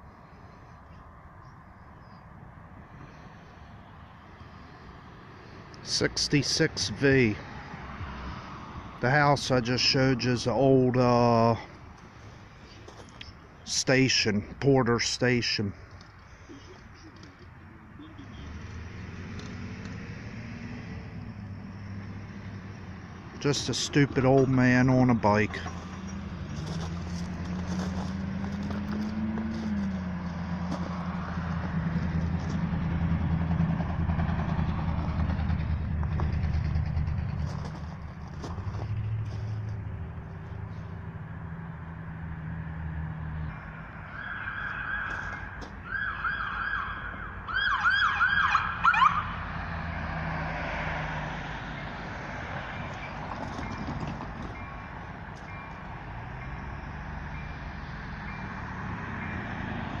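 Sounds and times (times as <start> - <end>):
low rumble of locomotives and traffic: 0.0 - 60.0
vehicle engine humming: 0.0 - 60.0
crossing warning bell chiming: 43.4 - 44.0, 52.8 - 59.6.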